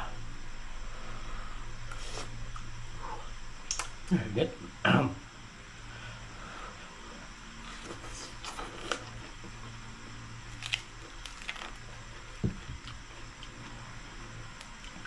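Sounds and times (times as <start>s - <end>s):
low steady hum: 0.0s - 15.0s
crispy skin crackling: 10.4s - 13.7s.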